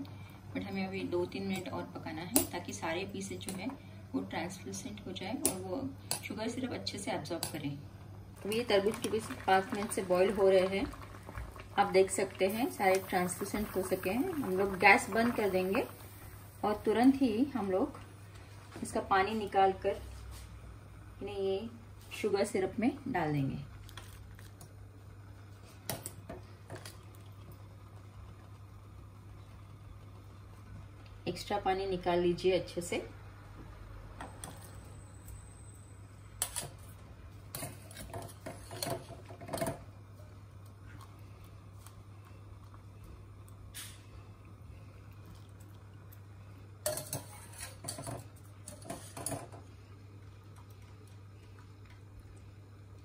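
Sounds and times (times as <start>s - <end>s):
skimmer scraping steel pot: 46.9s - 49.5s.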